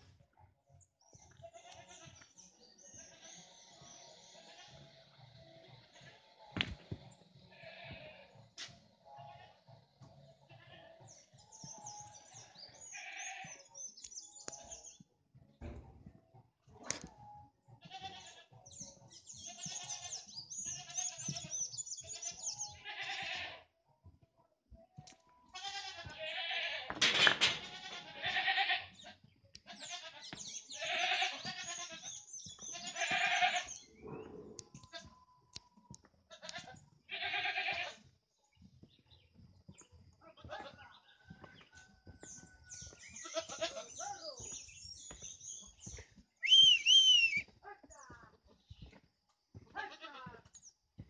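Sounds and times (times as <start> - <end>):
livestock bleating: 1.4 - 2.2, 2.8 - 3.6, 4.2 - 5.0, 5.6 - 6.2, 7.5 - 8.4, 9.2 - 9.7, 10.4 - 11.2, 12.3 - 13.7, 17.8 - 18.8, 19.4 - 23.7, 25.4 - 27.0, 27.7 - 35.2, 36.3 - 38.0, 40.3 - 41.0, 43.2 - 44.3, 49.8 - 50.4.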